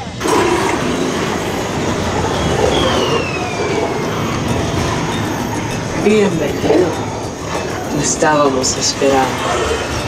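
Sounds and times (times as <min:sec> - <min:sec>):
loud rumbling din: 0:00.0 - 0:10.0
falling whistle-like tone: 0:01.7 - 0:06.0.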